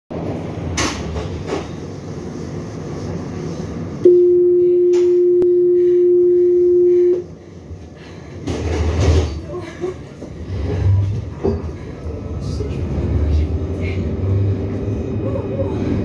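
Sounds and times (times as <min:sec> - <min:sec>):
tram interior hum: 0:00.1 - 0:16.0
door warning beep: 0:04.1 - 0:07.2.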